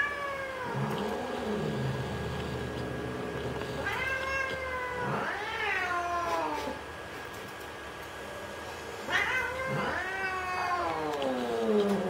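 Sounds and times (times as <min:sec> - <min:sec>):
cat yowling: 0:03.8 - 0:06.6, 0:09.1 - 0:12.0.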